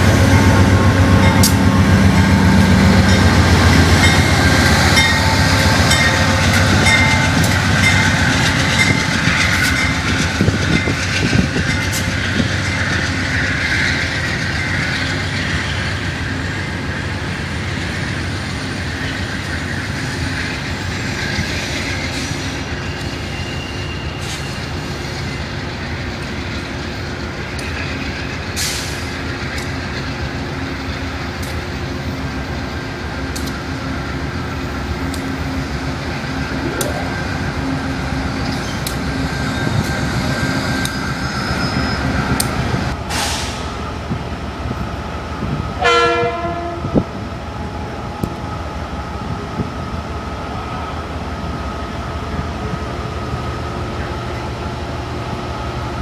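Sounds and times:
diesel locomotive engine rumble: 0:00.0 - 0:56.0
train horn blast: 0:45.8 - 0:47.0.

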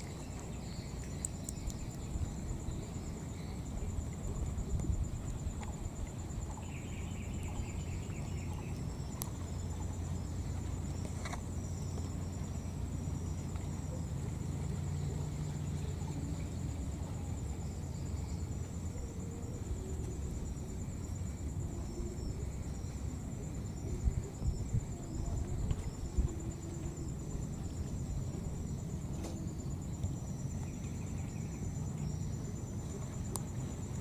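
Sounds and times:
insects trilling: 0:00.0 - 0:34.0.

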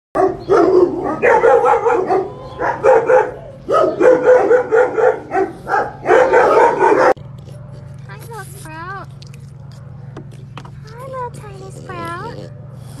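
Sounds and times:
dog yowling and whining: 0:00.3 - 0:07.2, 0:11.4 - 0:13.0.

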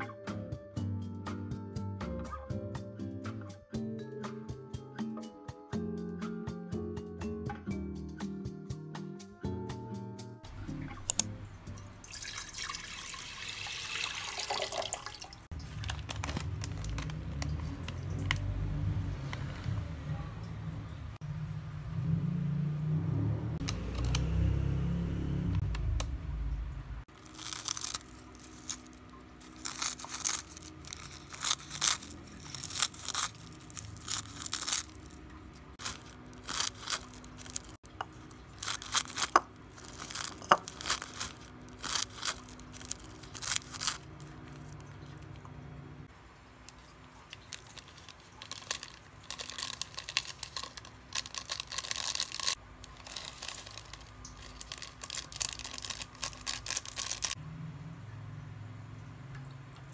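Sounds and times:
plastic packet crinkling: 0:14.2 - 0:18.5, 0:27.1 - 0:45.3, 0:46.7 - 0:57.4
sachet tearing open: 0:15.5 - 0:18.4, 0:27.1 - 0:35.2, 0:35.8 - 0:45.2, 0:47.3 - 0:57.4
seaweed sheets crunching: 0:15.5 - 0:18.5, 0:27.1 - 0:45.2, 0:46.7 - 0:57.4.

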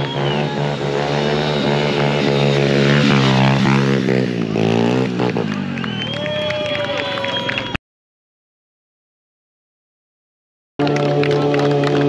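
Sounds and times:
motorcycle engine revving: 0:00.0 - 0:06.2, 0:10.8 - 0:12.0.

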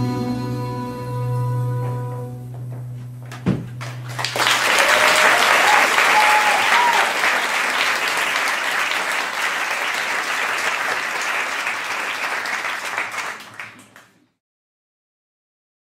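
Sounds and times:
audience applauding: 0:03.8 - 0:14.2.

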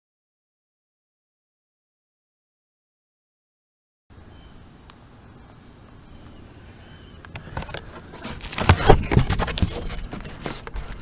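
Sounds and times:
cardboard scraping and rustling: 0:07.4 - 0:11.0.

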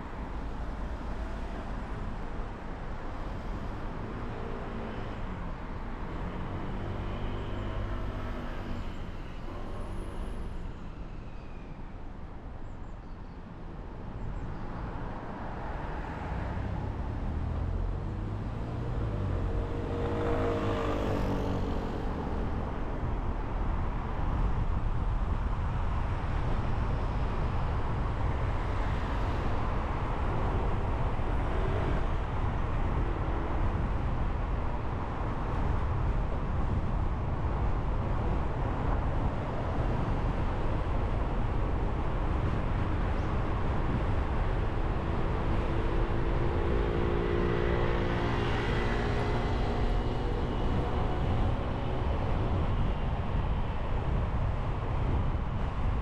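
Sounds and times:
road and tyre noise: 0:00.0 - 0:56.0
vehicle passing by: 0:16.2 - 0:22.8, 0:42.4 - 0:53.5.

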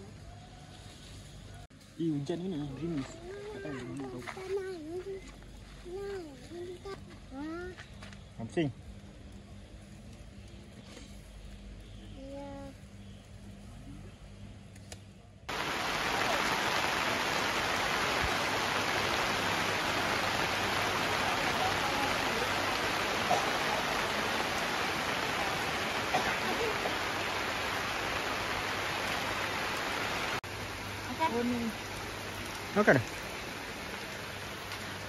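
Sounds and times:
steady rain: 0:15.5 - 0:35.0.

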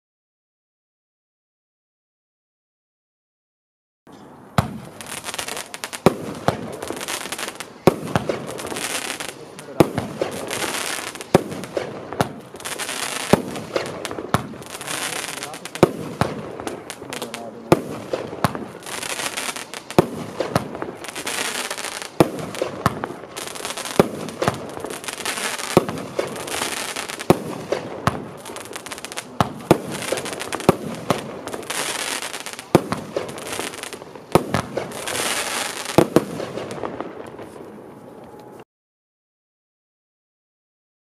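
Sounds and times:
fireworks bangs: 0:04.5 - 0:38.6
firework hiss: 0:04.6 - 0:37.1.

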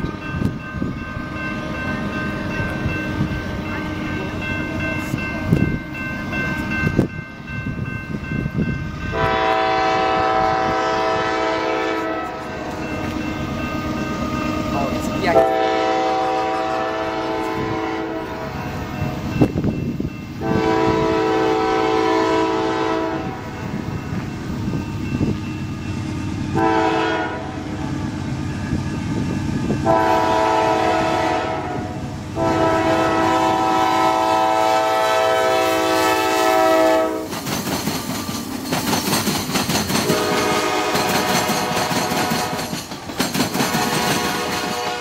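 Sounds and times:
rumble of engines and train: 0:00.0 - 0:45.0
locomotive air horn blasts: 0:09.1 - 0:12.8, 0:15.3 - 0:18.5, 0:20.4 - 0:23.5, 0:26.5 - 0:27.7, 0:29.8 - 0:37.3, 0:40.0 - 0:42.6, 0:43.7 - 0:45.0.

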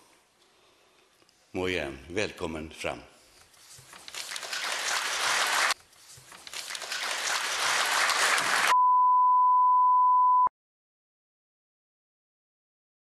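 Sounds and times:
audience applauding in a large hall: 0:04.1 - 0:05.8, 0:06.4 - 0:08.8.

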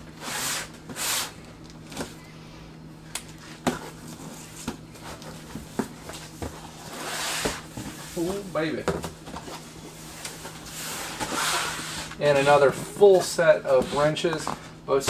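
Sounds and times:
cardboard scraping swishes: 0:06.7 - 0:08.4, 0:10.5 - 0:12.6.

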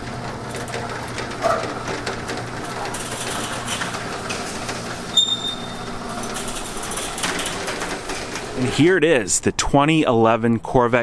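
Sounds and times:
garage door rattling rumble: 0:00.0 - 0:09.0
sharp high squeal: 0:05.1 - 0:05.8.

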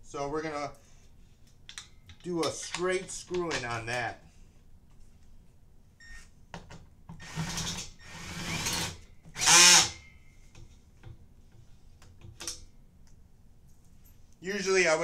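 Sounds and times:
cordless drill whining: 0:07.2 - 0:10.0.

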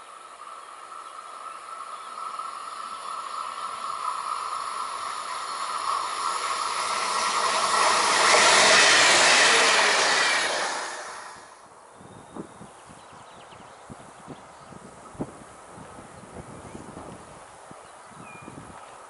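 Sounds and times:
train passing at speed: 0:00.0 - 0:11.9
steady high tone: 0:03.7 - 0:11.6.

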